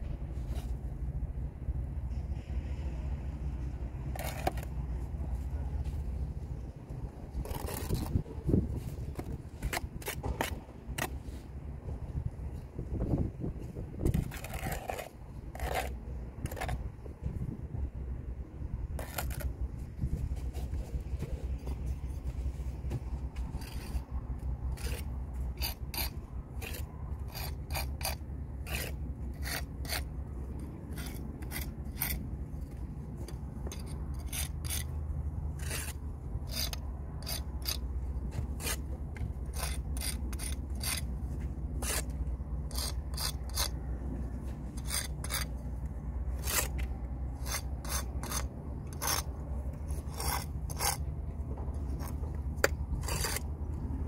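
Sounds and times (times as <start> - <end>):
brick jointer scraping mortar: 4.1 - 4.7, 7.3 - 11.5, 14.0 - 16.9, 19.0 - 51.1, 51.7 - 53.5.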